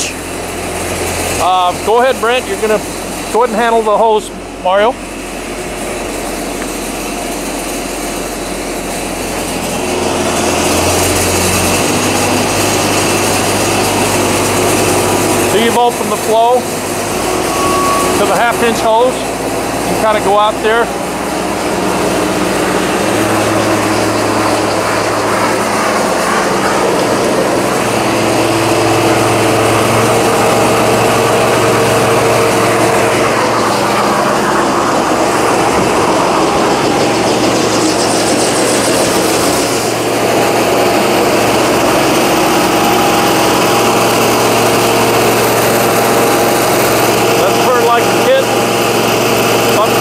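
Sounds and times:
diesel engine and pump running: 0.0s - 50.0s.

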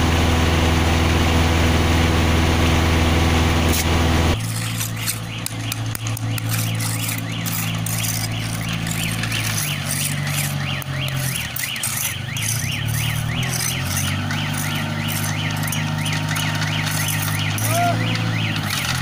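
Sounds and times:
diesel engine running: 0.0s - 19.0s
electronic warning alarm sweeping: 4.6s - 19.0s.

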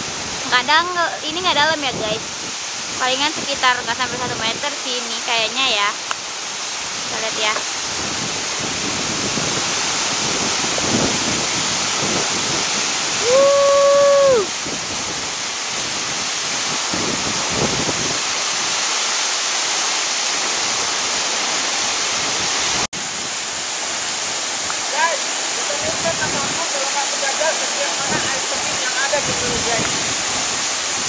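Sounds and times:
waterfall rushing: 0.0s - 31.0s
person calling: 13.2s - 14.5s.

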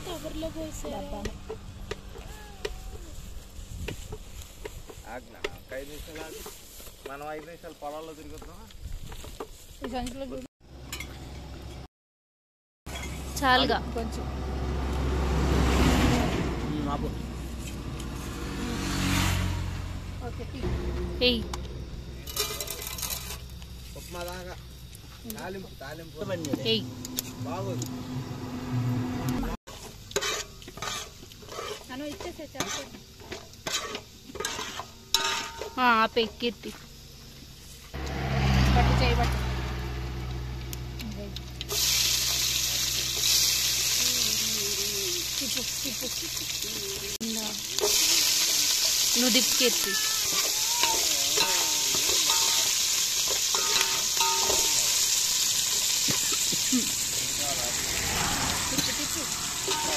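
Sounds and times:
seeds sizzling in oil: 0.0s - 10.5s, 17.0s - 28.0s, 29.7s - 59.9s
ladle scraping metal pot: 22.2s - 23.6s, 30.1s - 31.9s, 32.6s - 35.8s.

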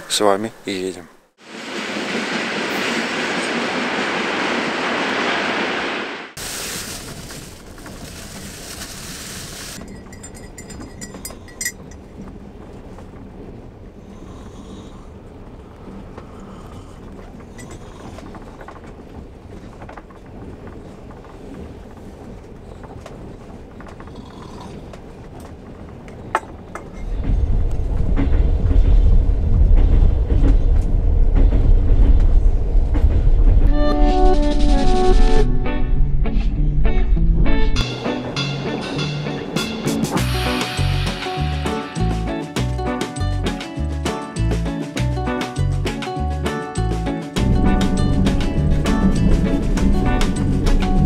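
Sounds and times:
train carriage rumble: 0.0s - 37.0s, 37.8s - 51.0s
mug clinks and creaks: 9.8s - 12.0s
bass-heavy background music: 33.6s - 51.0s.

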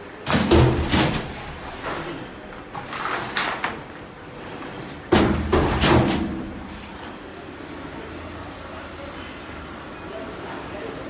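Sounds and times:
metal trays scraping and knocking: 0.3s - 7.2s.

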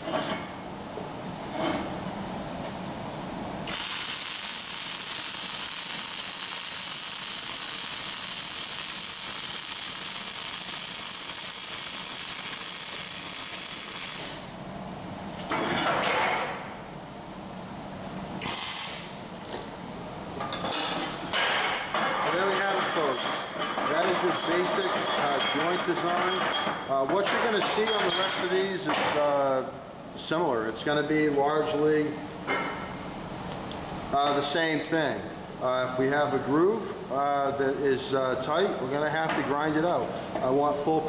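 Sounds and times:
welding arc buzzing: 3.6s - 15.5s, 18.4s - 19.8s.

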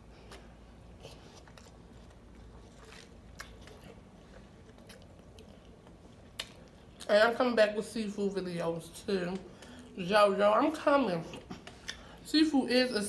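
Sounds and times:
chewing food: 0.3s - 7.1s.

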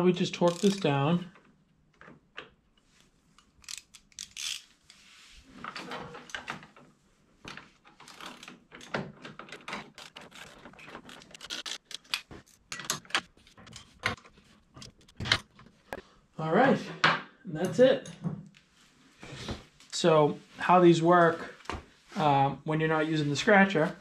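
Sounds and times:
socket ratchet clicking: 0.4s - 0.9s, 3.4s - 4.7s
metal tools clinking: 0.4s - 1.0s.

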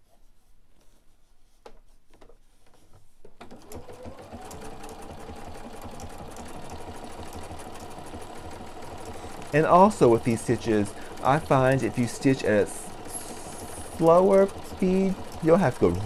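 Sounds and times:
sewing machine stitching: 3.4s - 16.0s.

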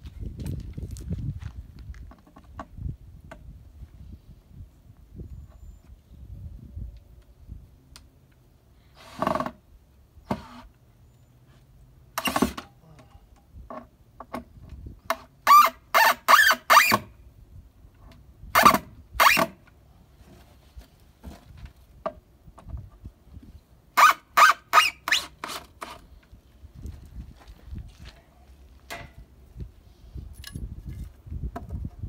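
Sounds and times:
cordless drill driving screws into wood: 10.3s - 10.7s, 12.2s - 12.7s, 15.4s - 17.1s, 24.0s - 26.0s.

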